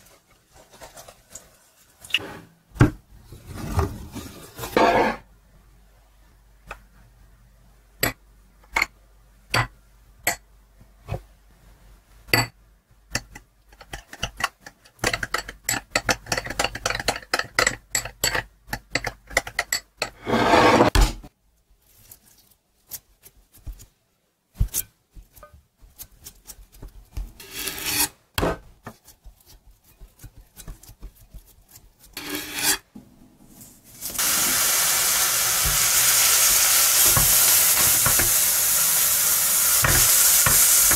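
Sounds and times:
spoon scraping glass bowl: 0:20.0 - 0:20.9
frying sizzle: 0:33.8 - 0:40.9.

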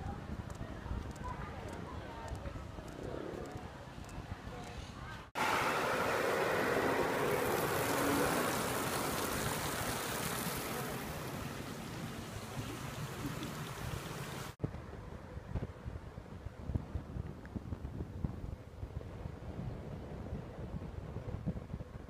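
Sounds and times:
fountain water splashing: 0:05.4 - 0:14.6.

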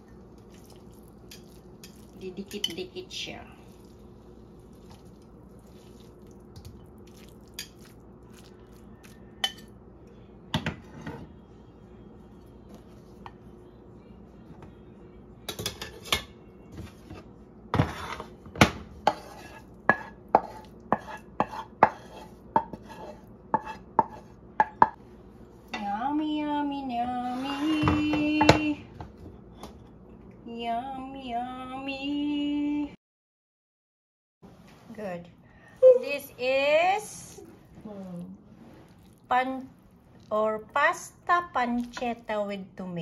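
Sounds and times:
utensils scraping frying pan: 0:17.1 - 0:18.4, 0:19.0 - 0:24.4, 0:27.2 - 0:28.1.

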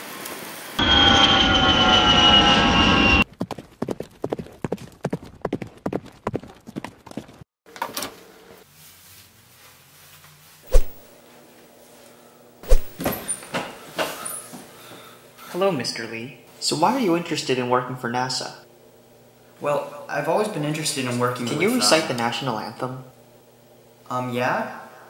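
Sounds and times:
loud rushing with falling whine: 0:00.8 - 0:03.2
quick footsteps: 0:12.6 - 0:13.2.

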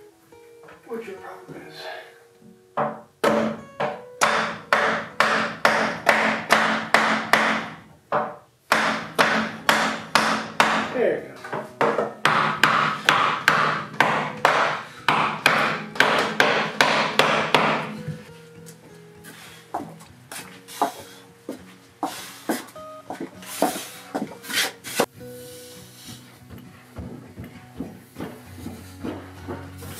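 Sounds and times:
mallet knocking on wood: 0:02.8 - 0:18.0, 0:26.5 - 0:29.7.

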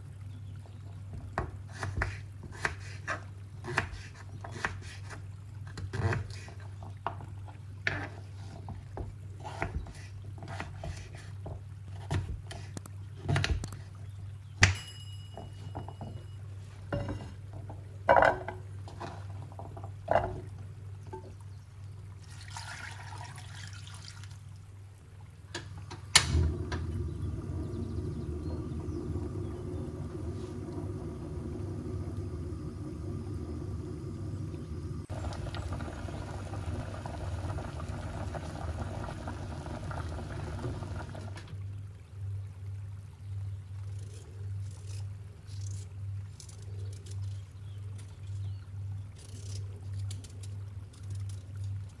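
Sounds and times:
water hissing and bubbling in pan: 0:00.0 - 0:14.0, 0:26.1 - 0:41.6
water pouring: 0:22.1 - 0:42.0.

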